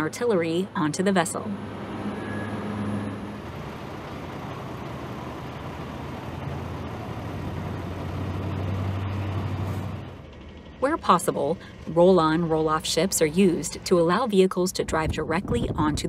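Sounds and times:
heavy machine engine running: 0:00.0 - 0:16.0.

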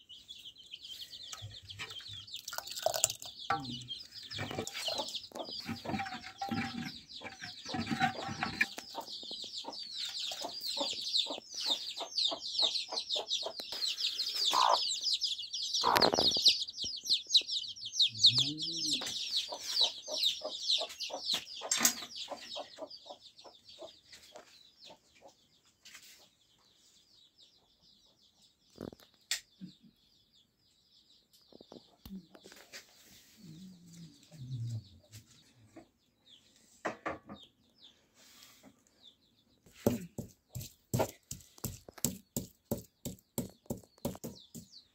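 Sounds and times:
chickens clucking and chirping: 0:00.0 - 0:44.9
low chicken calls: 0:18.1 - 0:19.2.

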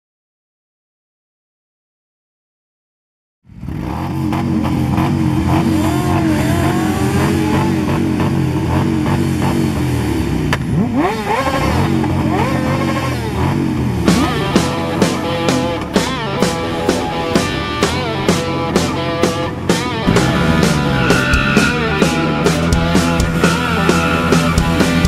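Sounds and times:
motorcycle engine revving: 0:03.5 - 0:25.0
rock music: 0:14.0 - 0:25.0.

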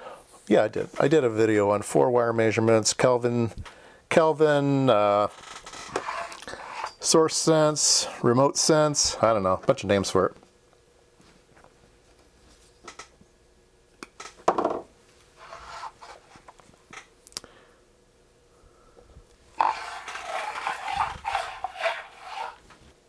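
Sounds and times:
wire rustling and rubbing: 0:15.4 - 0:16.5, 0:19.5 - 0:23.0.

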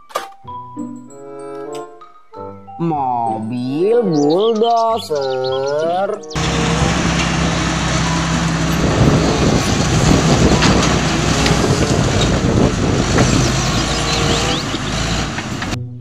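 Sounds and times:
bulldozer diesel engine under load: 0:06.4 - 0:15.8
tracks clattering: 0:06.4 - 0:15.8.

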